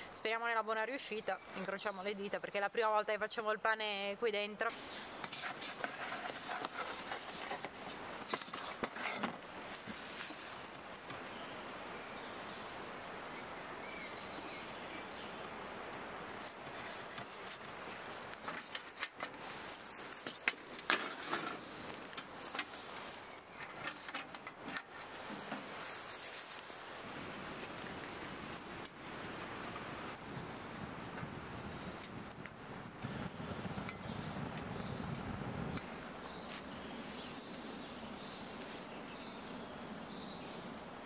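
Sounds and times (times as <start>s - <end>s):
steady hiss: 4.6s - 41.0s.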